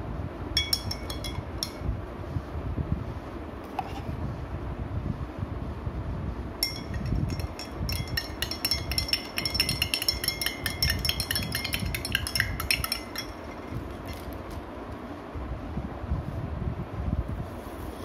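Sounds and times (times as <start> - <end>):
spoon clinking in glass mug: 0.6 - 1.8, 6.6 - 14.3.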